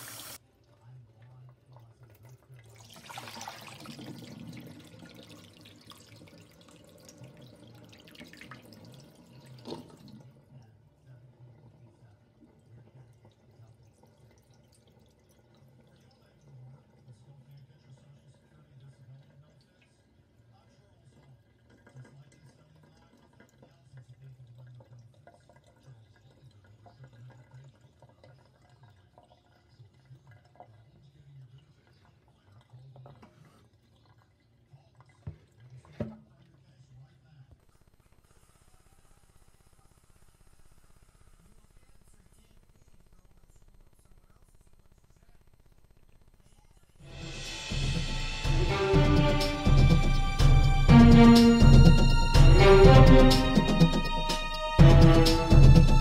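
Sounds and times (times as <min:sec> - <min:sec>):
water trickling and dripping: 0:00.0 - 0:36.4
water pouring into a sink: 0:00.0 - 0:36.7.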